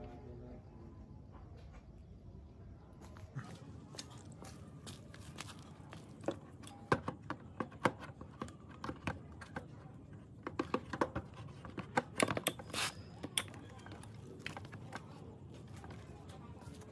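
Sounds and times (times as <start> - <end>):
clicks and knocks of hand tools: 10.4 - 14.8.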